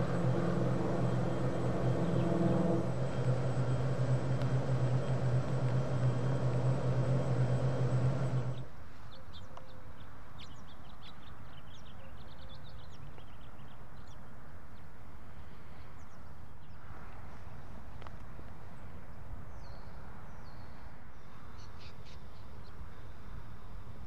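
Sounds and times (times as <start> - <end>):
loud rumble with low hum: 0.0 - 8.7
birds chirping: 0.0 - 14.2.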